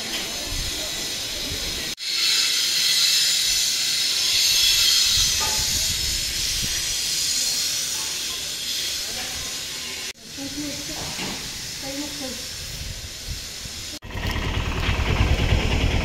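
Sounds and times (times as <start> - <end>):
steady high hiss: 0.0 - 14.0.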